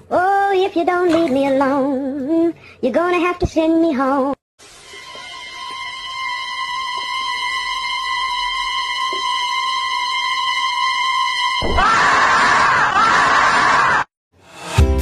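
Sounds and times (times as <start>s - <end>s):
high-pitched tone: 4.6s - 11.0s
harsh screaming noise: 4.9s - 14.1s.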